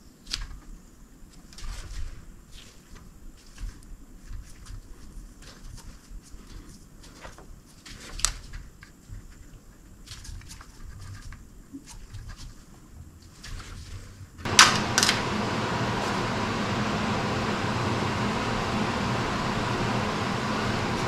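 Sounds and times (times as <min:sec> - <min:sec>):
machine running: 0:14.4 - 0:21.0.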